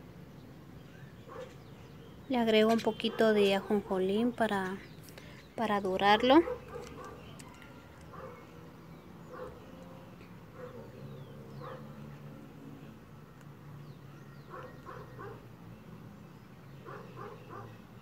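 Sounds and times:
dog barking: 1.3 - 1.6, 6.4 - 7.3, 8.1 - 8.5, 9.3 - 9.6, 10.6 - 10.9, 11.6 - 12.0, 14.5 - 15.4, 16.8 - 17.8.

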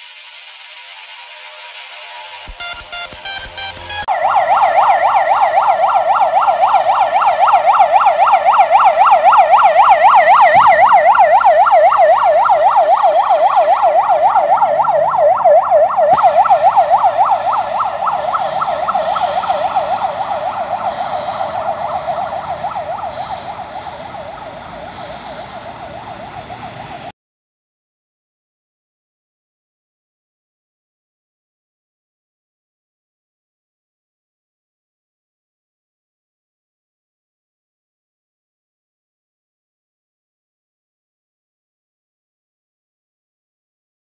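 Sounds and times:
electronic yelp siren: 0.1 - 27.1.

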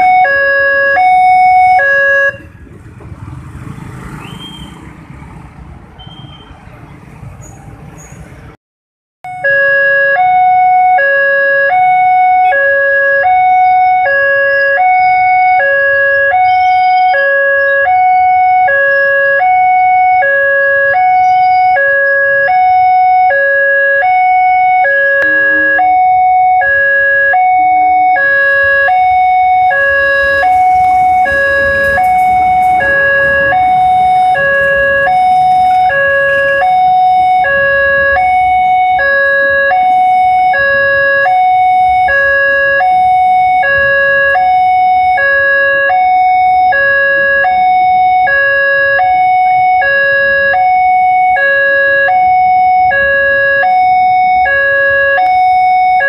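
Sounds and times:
level crossing two-tone alarm: 0.0 - 2.5, 9.3 - 56.0
approaching train rumble: 29.9 - 36.6.

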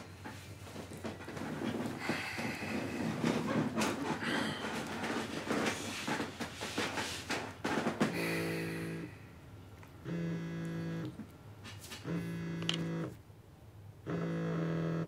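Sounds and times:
mobile phone vibrating buzz: 8.1 - 9.2, 10.0 - 11.2, 12.0 - 13.2, 14.0 - 15.0.

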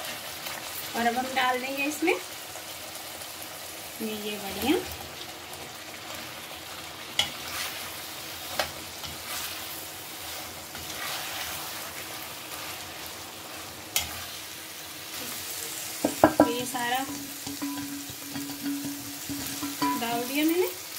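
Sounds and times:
masala sizzling in oil: 0.0 - 20.9
metal spatula stirring: 8.5 - 14.3, 16.1 - 20.4
metal knocks against pan: 16.0 - 20.0.

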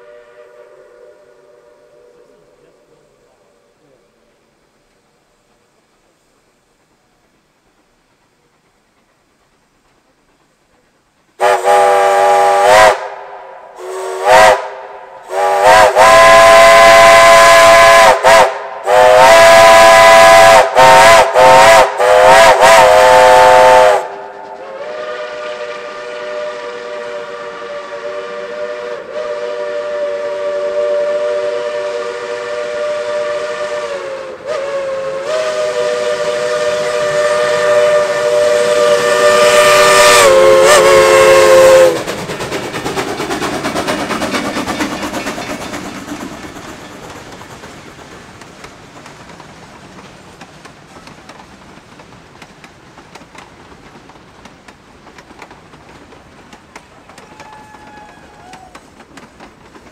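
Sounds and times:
steam locomotive whistle: 0.0 - 2.7, 11.4 - 42.2, 57.1 - 59.0.

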